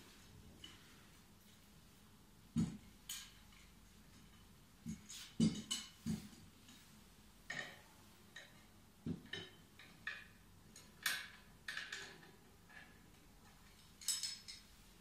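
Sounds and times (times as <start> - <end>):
metal clicks and knocks: 7.5 - 14.7.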